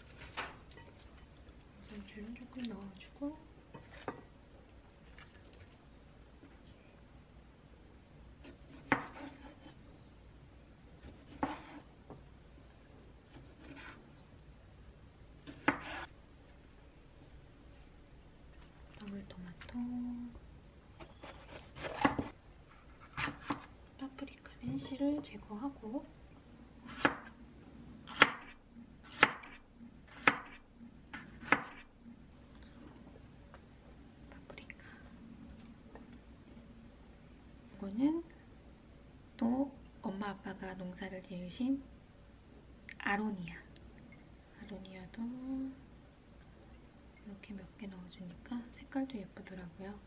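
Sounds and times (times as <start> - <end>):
knife slicing tomatoes: 8.4 - 9.7, 11.0 - 11.9, 15.5 - 16.1, 21.0 - 22.3, 28.1 - 31.9
knife chopping on wooden board: 8.7 - 9.6, 29.1 - 30.6.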